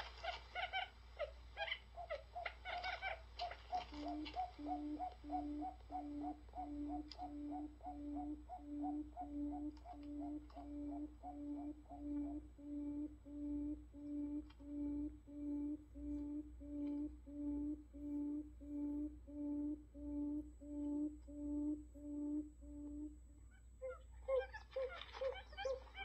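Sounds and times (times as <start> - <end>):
recorded bird call low hooting: 0.0 - 26.0.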